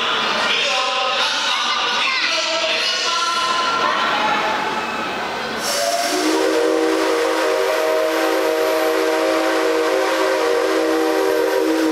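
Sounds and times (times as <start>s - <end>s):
steam locomotive whistle: 5.6s - 11.9s.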